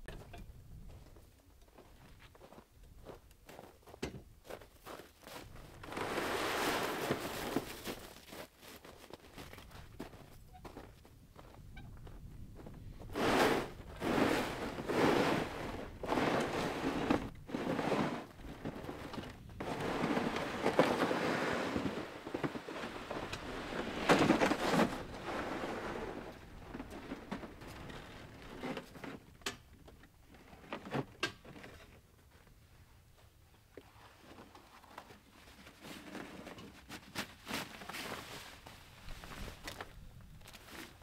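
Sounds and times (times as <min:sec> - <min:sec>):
footsteps crunching in snow: 0:04.4 - 0:19.0
plastic sled scraping on snow: 0:05.6 - 0:08.8, 0:13.0 - 0:29.2
sled knocking: 0:13.2 - 0:27.9.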